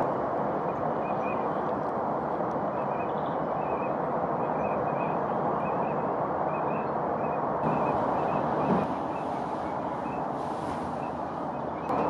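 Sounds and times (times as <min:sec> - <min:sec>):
steady rushing noise: 0:00.0 - 0:12.0
faint high bird calls: 0:02.7 - 0:12.0.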